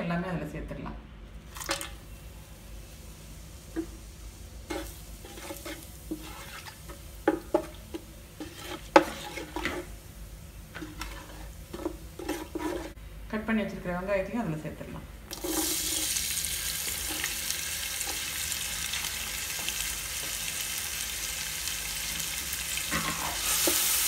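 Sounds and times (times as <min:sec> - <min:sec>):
spices frying in oil: 0:01.4 - 0:13.0, 0:15.2 - 0:24.0
spoon knocking against pan: 0:07.2 - 0:08.0.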